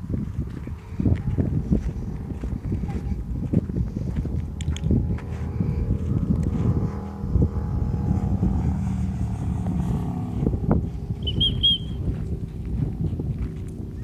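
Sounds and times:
vehicle engine rumble: 0:00.0 - 0:14.0
high warbling chirp: 0:11.2 - 0:12.0.

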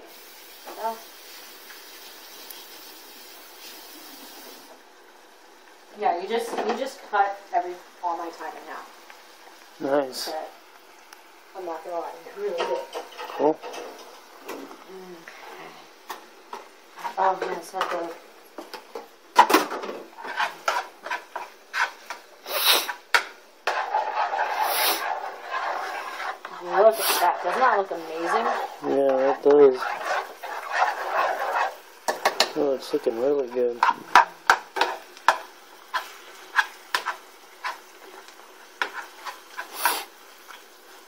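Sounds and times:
spoon scraping a pan: 0:12.5 - 0:41.0.

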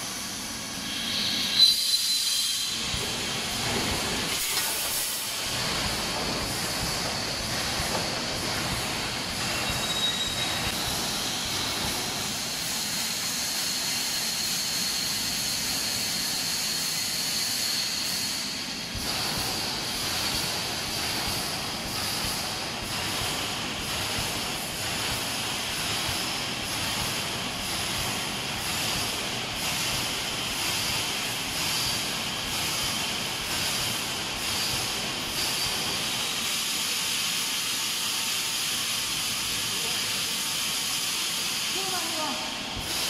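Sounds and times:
welding machine din with hiss: 0:00.0 - 0:43.0
thin high whine: 0:04.2 - 0:12.6.

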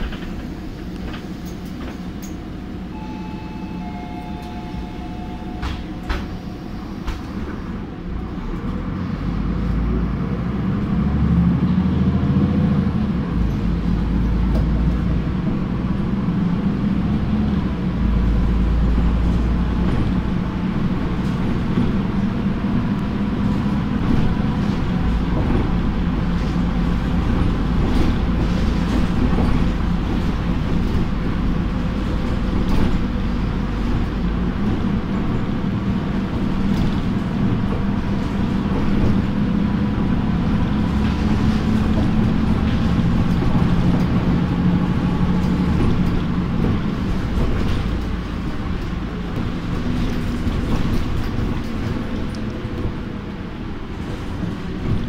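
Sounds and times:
bus engine accelerating: 0:00.0 - 0:55.0
short electronic beeps: 0:02.9 - 0:06.1.

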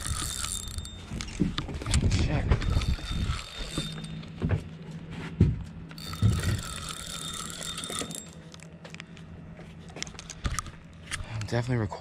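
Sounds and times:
fishing reel whirring: 0:00.0 - 0:04.4, 0:05.9 - 0:08.7.

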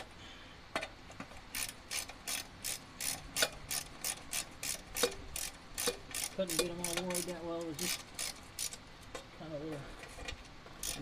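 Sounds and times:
hand ratchet wrench clicking: 0:01.5 - 0:08.8, 0:10.8 - 0:11.0.

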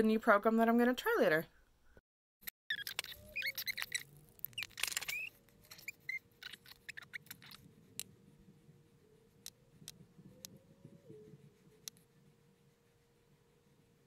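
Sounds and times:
short high-pitched squeaks: 0:02.7 - 0:07.6
faint steady hum: 0:05.3 - 0:14.0.

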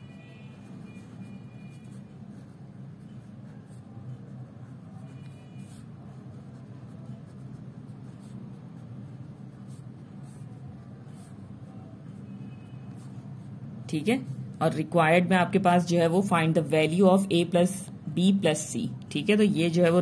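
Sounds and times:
pen scratching on paper: 0:00.0 - 0:15.2
steady low hum: 0:00.0 - 0:20.0.

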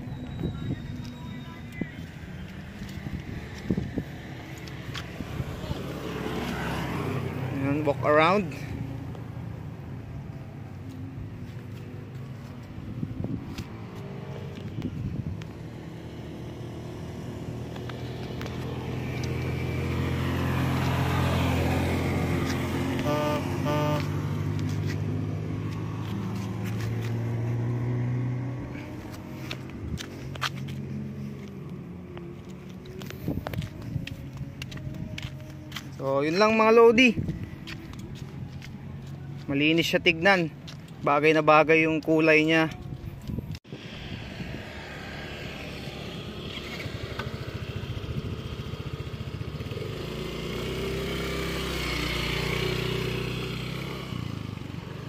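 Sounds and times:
scooter engine running: 0:08.7 - 0:30.8, 0:44.2 - 0:55.0
scooter engine idling: 0:46.1 - 0:55.0.

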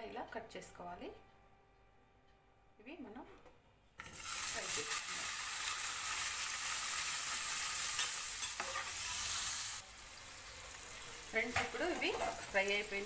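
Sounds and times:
cheese sizzling in hot oil: 0:04.0 - 0:13.0.

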